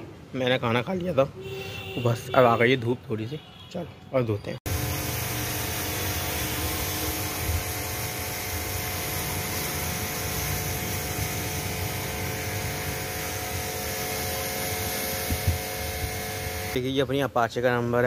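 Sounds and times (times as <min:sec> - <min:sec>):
pressure washer pump humming: 0:04.7 - 0:16.8
water jet spraying: 0:04.7 - 0:16.8.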